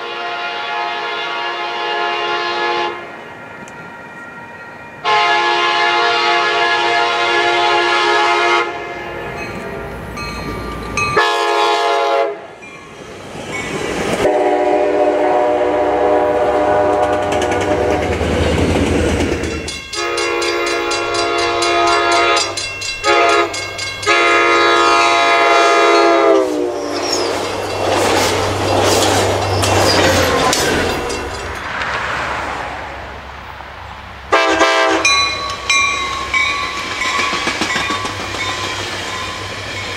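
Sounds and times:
train air horn blasts: 0:00.0 - 0:03.2, 0:05.0 - 0:09.4, 0:11.2 - 0:12.5, 0:14.2 - 0:18.2, 0:19.9 - 0:27.2, 0:34.3 - 0:35.6
diesel locomotive hum: 0:00.0 - 0:39.9
train rumble and wheel clatter: 0:00.0 - 0:39.9.

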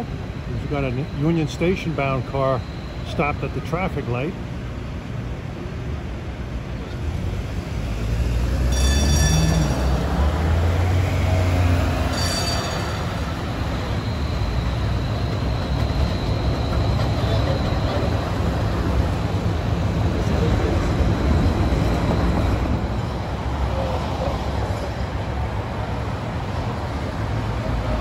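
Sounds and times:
streetcar rumble: 0:00.0 - 0:28.0
high wheel squeal: 0:08.5 - 0:19.3.

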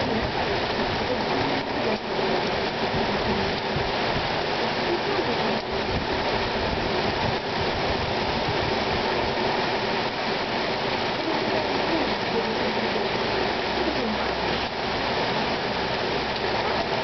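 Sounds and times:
heavy rain on pavement: 0:00.0 - 0:17.0.

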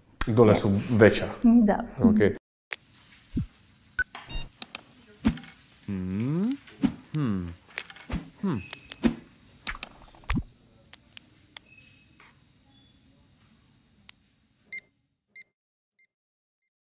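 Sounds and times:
sharp clicks: 0:08.7 - 0:11.0.

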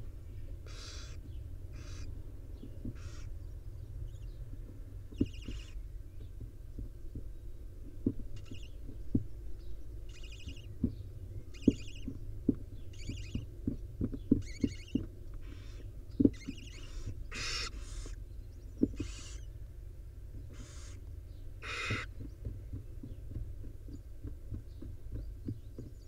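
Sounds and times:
steady low hum: 0:00.0 - 0:26.0
owls giving raspy calls: 0:00.6 - 0:02.1, 0:02.9 - 0:03.3, 0:14.4 - 0:18.2, 0:18.9 - 0:19.5, 0:20.5 - 0:21.0, 0:21.6 - 0:22.1.

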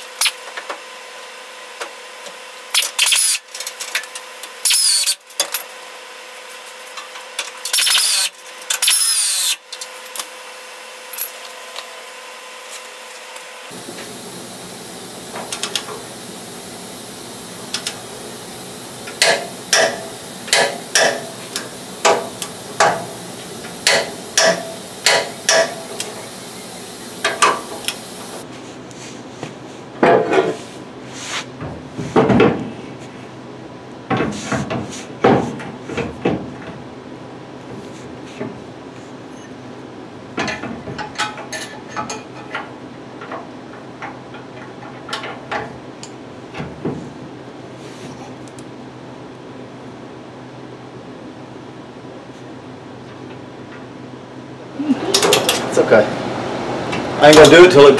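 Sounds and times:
ratchet wrench tightening: 0:23.7 - 0:26.1.

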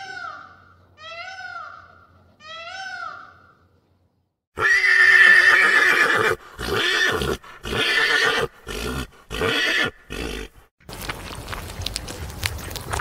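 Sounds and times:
pony whinnying: 0:04.6 - 0:10.7.

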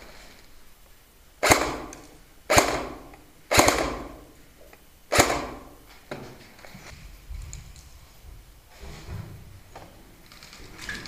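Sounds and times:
airsoft rifle shots: 0:01.4 - 0:04.4, 0:05.1 - 0:05.9.

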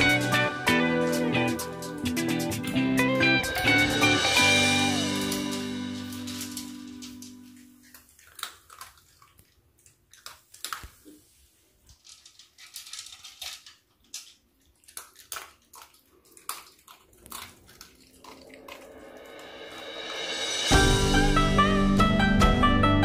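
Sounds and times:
dog crunching dry kibble: 0:05.2 - 0:19.8.

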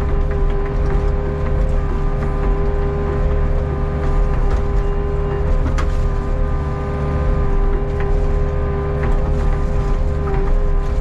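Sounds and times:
excavator engine drone: 0:00.0 - 0:11.0
steady whine: 0:00.0 - 0:11.0.

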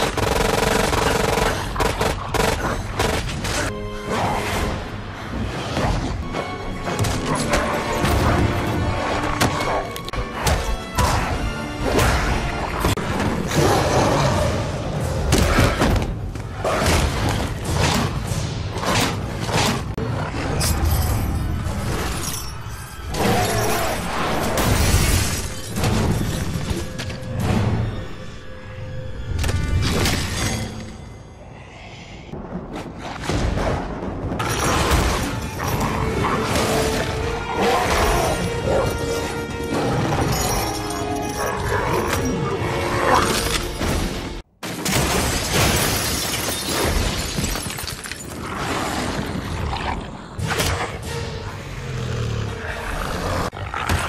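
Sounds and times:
film score music: 0:00.0 - 0:45.0, 0:49.3 - 0:54.0
debris crashing and shattering: 0:43.7 - 0:48.4.

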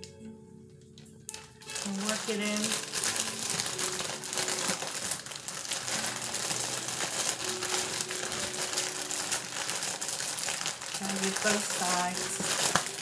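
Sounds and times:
crinkly rustling with crackles: 0:00.8 - 0:13.0.

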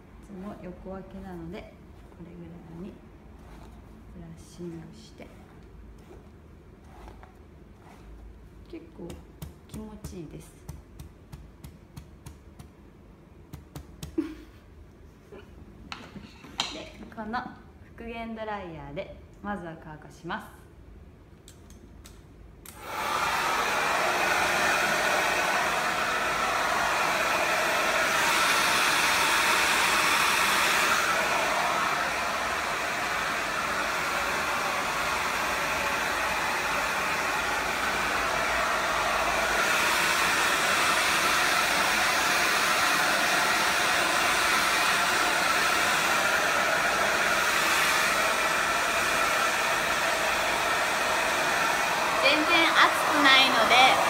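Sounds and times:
hair dryer blowing: 0:14.1 - 0:14.4, 0:22.7 - 0:54.0.

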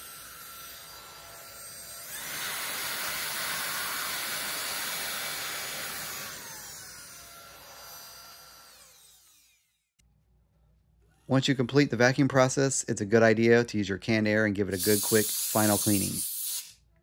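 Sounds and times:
handheld vacuum whining: 0:00.0 - 0:09.7.

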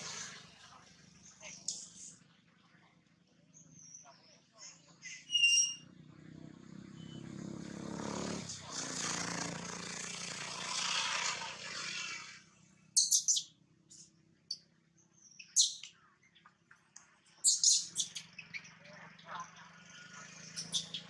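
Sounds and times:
infant monkey squeaking: 0:04.6 - 0:05.9, 0:13.0 - 0:13.5, 0:15.4 - 0:15.9, 0:17.4 - 0:18.8, 0:20.2 - 0:21.0.

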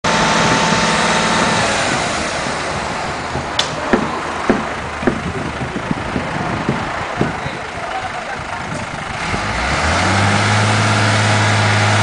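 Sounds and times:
vehicle engine running: 0:00.0 - 0:12.0
short sharp knocks: 0:03.4 - 0:05.3.

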